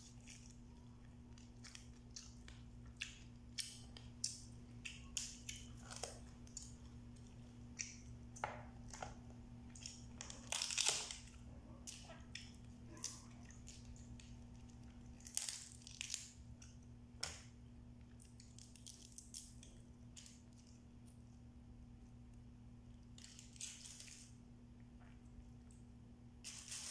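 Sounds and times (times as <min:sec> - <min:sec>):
chewing: 0:00.0 - 0:08.3, 0:09.6 - 0:15.7
crab shells cracking: 0:09.7 - 0:17.4.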